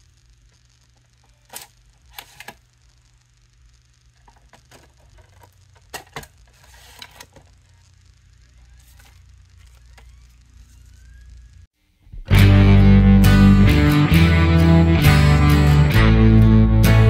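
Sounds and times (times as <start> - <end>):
disc drive spinning up whine: 0.0 - 11.7
paper rustling: 4.6 - 7.5, 8.8 - 10.9.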